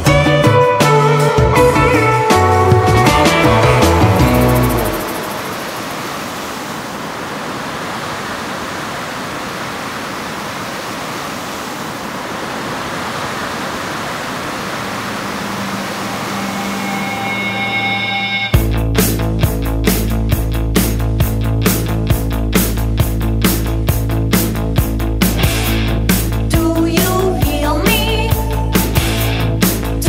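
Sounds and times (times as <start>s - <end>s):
ocean surf rushing: 1.0s - 18.6s.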